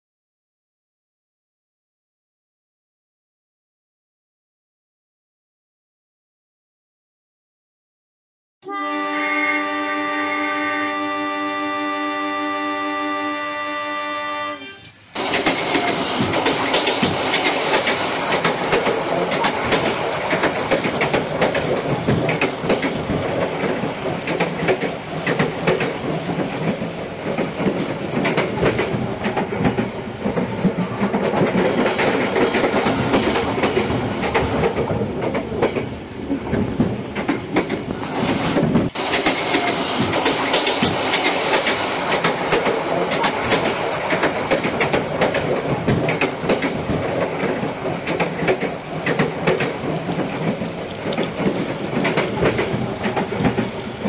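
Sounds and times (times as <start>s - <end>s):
model train rumble: 8.7s - 54.0s
clicking over rail joints: 14.8s - 54.0s.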